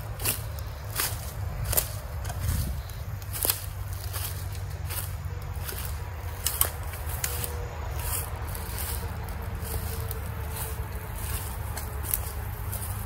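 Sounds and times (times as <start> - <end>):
footsteps crunching through dry leaves: 0.0 - 13.0
low steady rumble: 0.0 - 13.0
plant stems brushing: 0.0 - 13.0.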